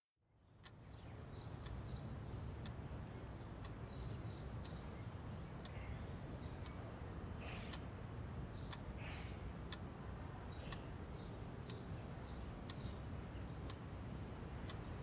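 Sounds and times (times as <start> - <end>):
clock ticking: 1.5 - 1.8, 2.4 - 5.8, 7.7 - 7.9, 8.7 - 9.0, 12.6 - 12.9, 13.6 - 13.9, 14.5 - 15.0.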